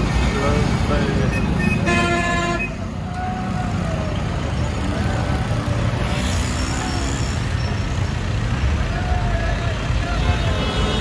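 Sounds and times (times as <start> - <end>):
truck and bus engines rumbling: 0.0 - 11.0
vehicle horn: 1.8 - 2.7.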